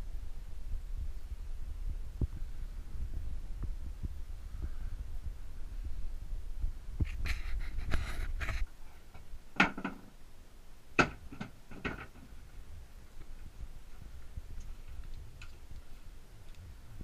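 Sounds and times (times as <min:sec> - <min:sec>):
wind noise: 0:00.0 - 0:10.2, 0:11.0 - 0:17.0
camera handling rumble: 0:07.0 - 0:08.7
knocks and clatters: 0:07.9 - 0:10.1, 0:11.0 - 0:12.4.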